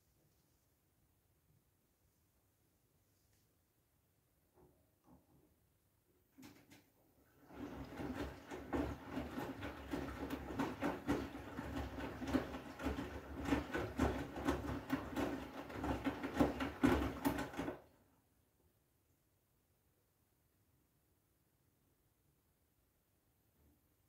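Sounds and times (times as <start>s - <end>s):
laundry tumbling in washing machine: 6.4s - 18.1s
washing machine motor hum: 7.2s - 18.1s.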